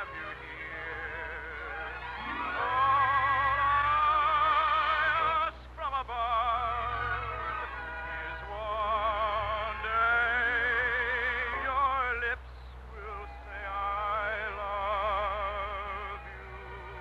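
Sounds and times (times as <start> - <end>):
orchestra playing: 0.0 - 5.4
operetta singing with vibrato: 0.0 - 17.0.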